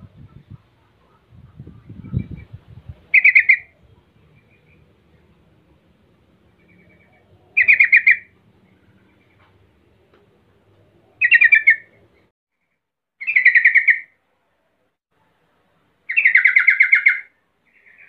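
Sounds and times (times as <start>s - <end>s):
bird chattering call: 3.1s - 3.7s, 6.7s - 8.3s, 11.2s - 11.9s, 16.1s - 18.0s.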